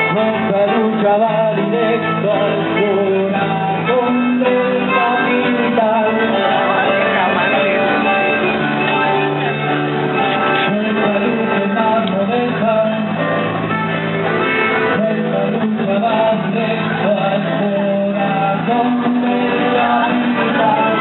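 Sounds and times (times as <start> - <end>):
voices singing: 0.0 - 9.6, 14.8 - 21.0
plucked and strummed small guitars: 0.0 - 21.0.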